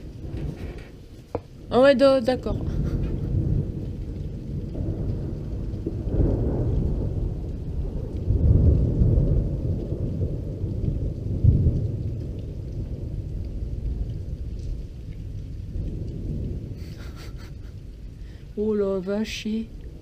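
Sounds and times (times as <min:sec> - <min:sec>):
rain falling: 0:00.0 - 0:20.0
rolling thunder: 0:00.0 - 0:20.0.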